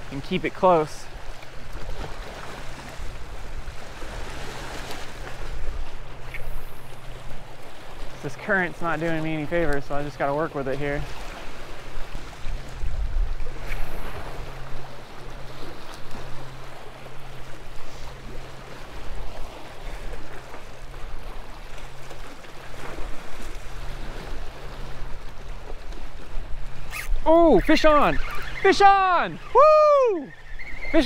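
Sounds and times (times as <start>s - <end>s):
waves splashing against rocks: 0.0s - 31.0s
wind on microphone: 11.1s - 16.4s.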